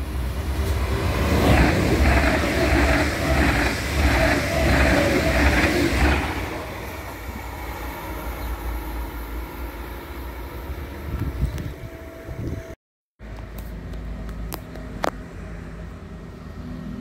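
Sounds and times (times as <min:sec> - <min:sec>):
train wheels rumbling on rail: 0:00.0 - 0:12.7.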